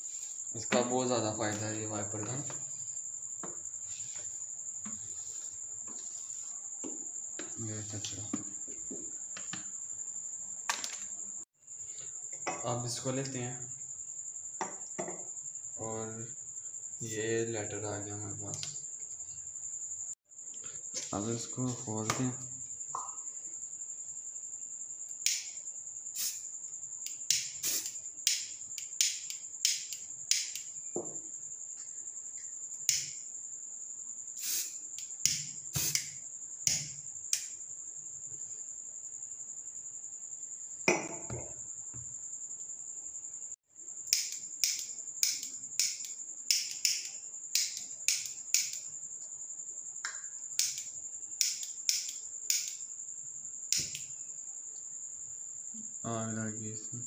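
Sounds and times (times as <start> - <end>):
cricket chirping: 0.0 - 57.0
plastic lighter clicking: 44.1 - 48.8, 50.6 - 52.8.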